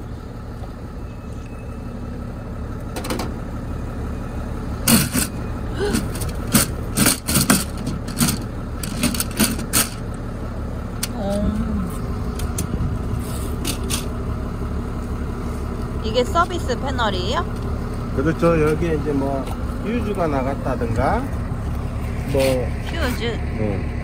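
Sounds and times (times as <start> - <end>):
low engine-like rumble: 0.0 - 24.0
metallic knocks and clatters: 6.1 - 10.0.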